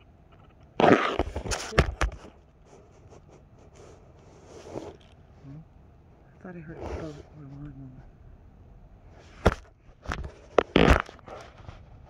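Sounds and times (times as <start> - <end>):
phone rustling against clothing: 0.4 - 5.3, 9.2 - 12.0.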